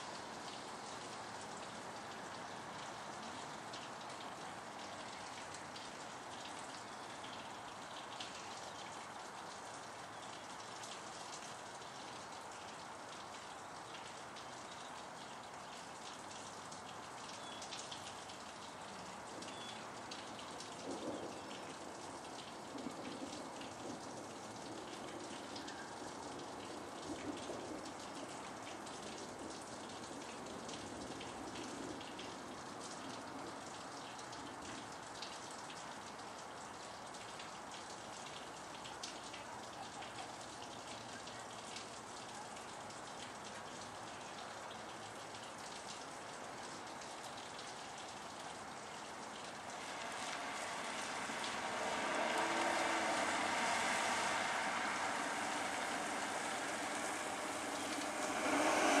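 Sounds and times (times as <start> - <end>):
rain falling steadily: 0.0 - 59.0
loud noise over rain: 48.5 - 59.0.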